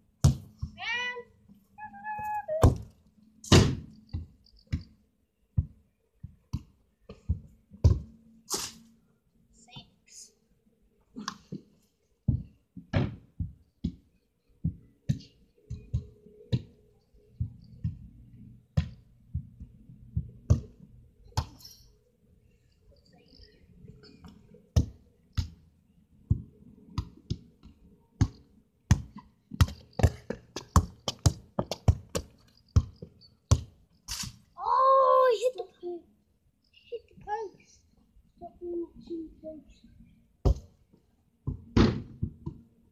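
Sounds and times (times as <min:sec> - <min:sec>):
football thudding: 0:03.5 - 0:04.3, 0:12.3 - 0:14.0, 0:41.5 - 0:42.6.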